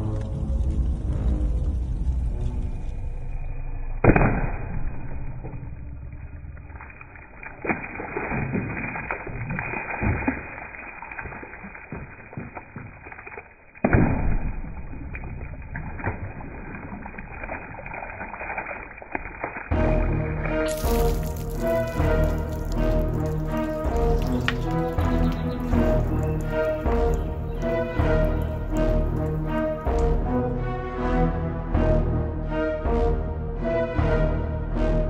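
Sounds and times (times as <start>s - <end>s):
water splashing and pouring: 4.0s - 30.6s.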